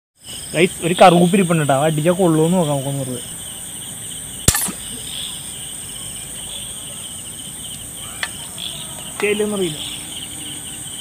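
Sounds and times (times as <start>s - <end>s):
crickets chirping: 0.2s - 11.0s
speargun firing snap: 4.4s - 5.0s.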